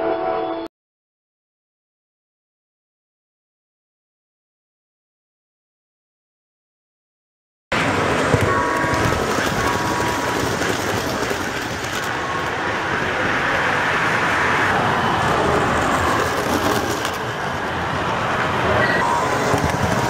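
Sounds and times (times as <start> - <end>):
model train rumbling on metal track: 7.7 - 20.0.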